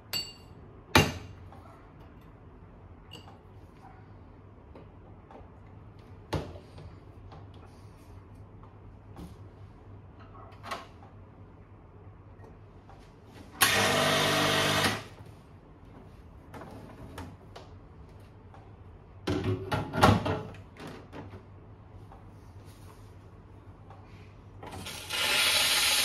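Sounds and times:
espresso machine pump humming: 0:24.8 - 0:26.0.

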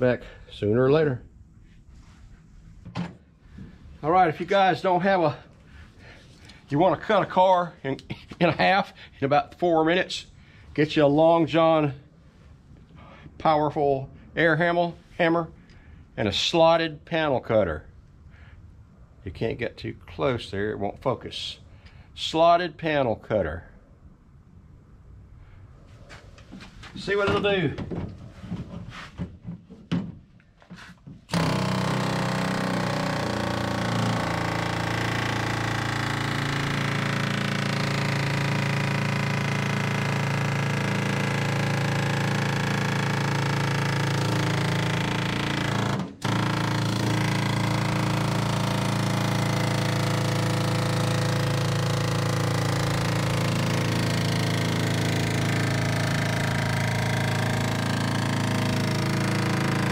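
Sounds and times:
air hammer cutting sheet metal: 0:31.3 - 0:59.9.

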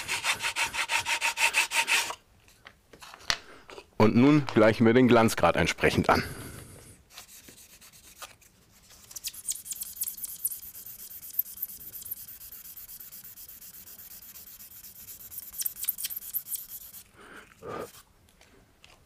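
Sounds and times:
polishing pad rubbing on wood: 0:09.5 - 0:17.1.

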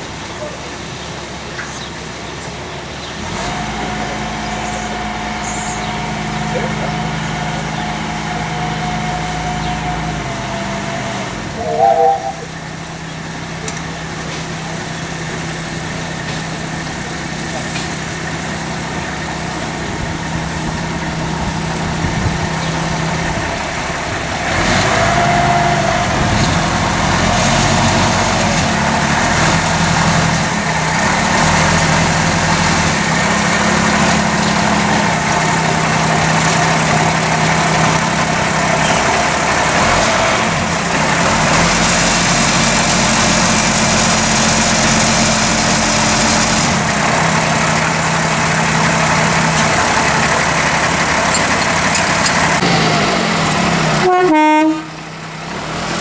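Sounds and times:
diesel locomotive engine running: 0:00.0 - 0:56.0
brief high squeal: 0:11.5 - 0:12.6.

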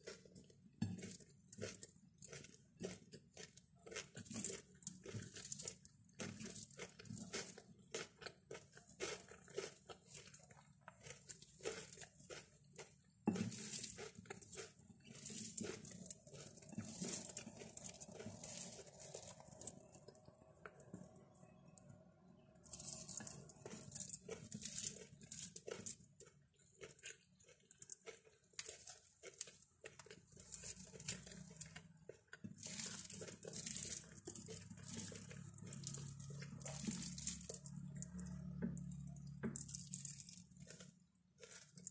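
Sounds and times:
fingers squishing food on glass: 0:00.0 - 0:21.8, 0:22.4 - 0:41.9.

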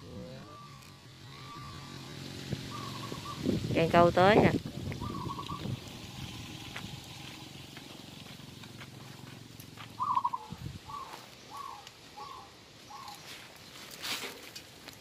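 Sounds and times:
dove cooing: 0:00.0 - 0:03.6, 0:05.0 - 0:06.6, 0:09.7 - 0:13.4.

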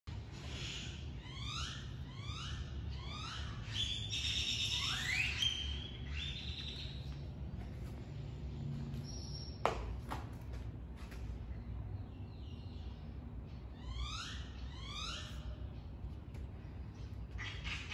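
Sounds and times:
songbird singing: 0:00.4 - 0:07.6, 0:11.5 - 0:17.9
steady low rumble: 0:05.5 - 0:13.8.

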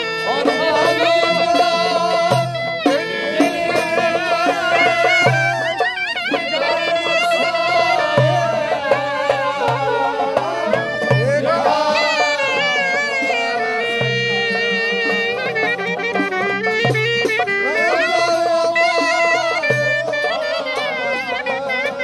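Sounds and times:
clarinet melody: 0:00.0 - 0:03.7, 0:04.6 - 0:22.0
rhythmic accompaniment: 0:00.0 - 0:22.0.

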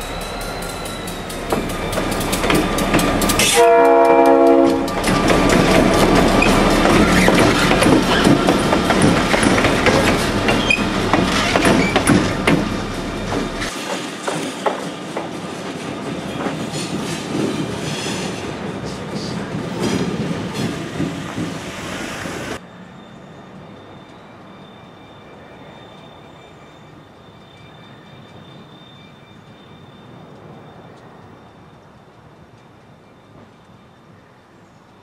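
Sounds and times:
wheels clacking over rail joints: 0:00.0 - 0:22.0
diesel locomotive engines running: 0:00.0 - 0:27.6.

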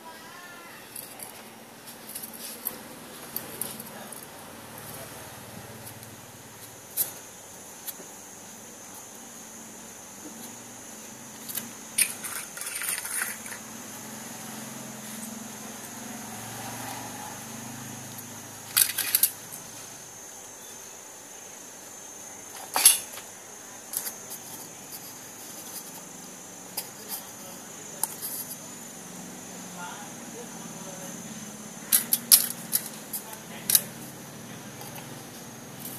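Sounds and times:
tin can clinking on stone: 0:12.0 - 0:13.6.

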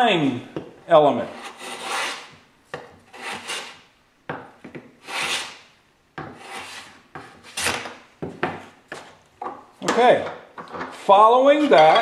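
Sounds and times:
hand plane shaving wood: 0:01.4 - 0:02.3, 0:05.1 - 0:05.5.

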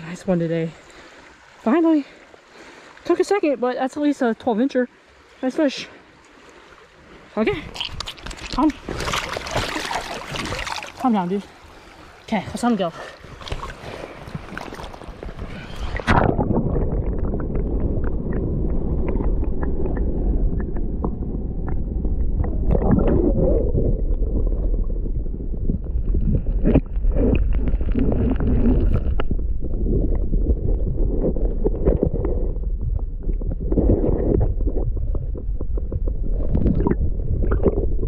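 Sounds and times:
muffled underwater stream rushing: 0:00.0 - 0:38.0
small underwater clicks and knocks: 0:07.7 - 0:09.7, 0:13.4 - 0:23.2, 0:26.0 - 0:38.0
splash into water: 0:07.8 - 0:11.1.

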